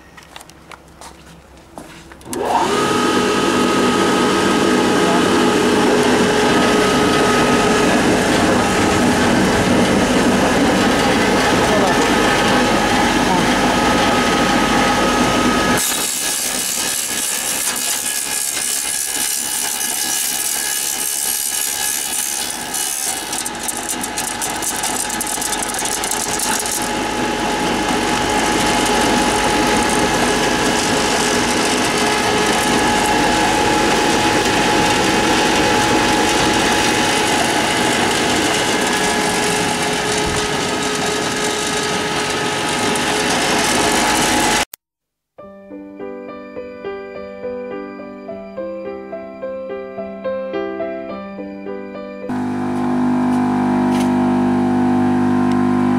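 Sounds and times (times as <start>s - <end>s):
motor hum: 0.0s - 44.6s, 52.3s - 55.9s
cutter whirring grinding sticks: 2.2s - 44.7s.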